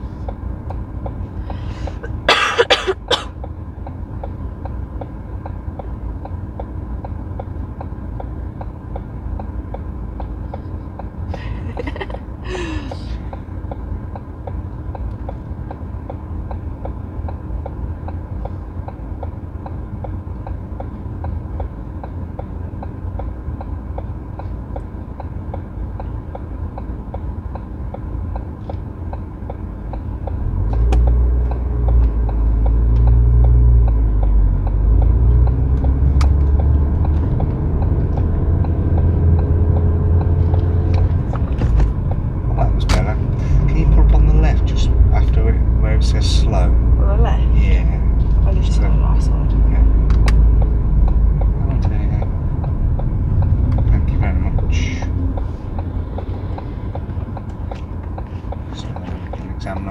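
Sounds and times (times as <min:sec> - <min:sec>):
car engine and road rumble: 0:00.0 - 0:59.9
indicator ticking: 0:13.2 - 0:59.9.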